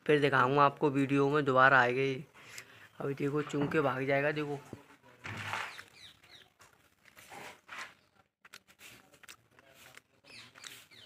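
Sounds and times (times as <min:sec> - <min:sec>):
distant bird chirps: 0:05.6 - 0:06.6, 0:10.2 - 0:11.0.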